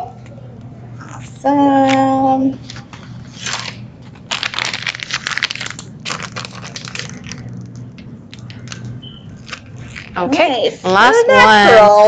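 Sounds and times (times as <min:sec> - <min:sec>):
plastic piping bag crinkling: 0:02.8 - 0:10.5.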